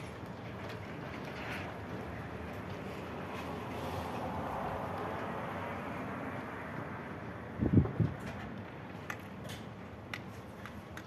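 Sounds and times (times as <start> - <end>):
construction site rumble and hiss: 0.0 - 11.0.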